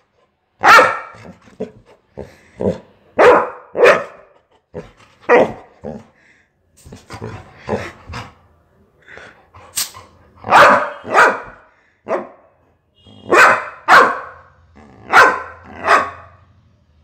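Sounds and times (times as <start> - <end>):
dog barking sharply: 0.6 - 1.3, 3.2 - 4.3, 9.8 - 12.4, 13.2 - 14.5, 15.1 - 16.4.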